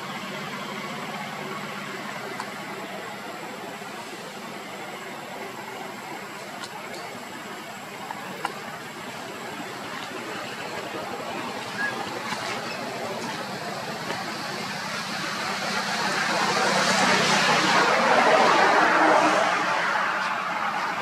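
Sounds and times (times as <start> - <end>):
motor vehicle passing: 7.6 - 21.0.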